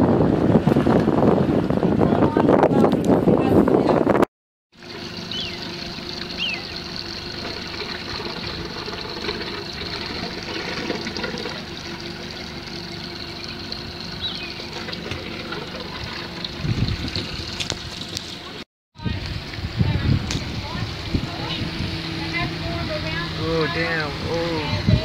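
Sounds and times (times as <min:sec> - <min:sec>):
boat engine idling: 0:04.7 - 0:25.0
faint high chirps: 0:06.3 - 0:06.8.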